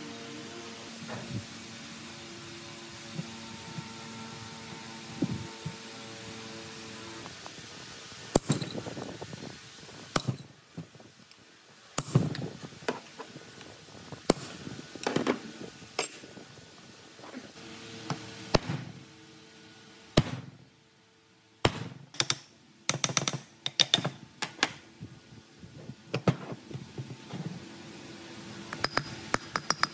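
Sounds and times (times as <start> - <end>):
tools knocking and clicking: 22.1 - 24.7, 28.7 - 29.9.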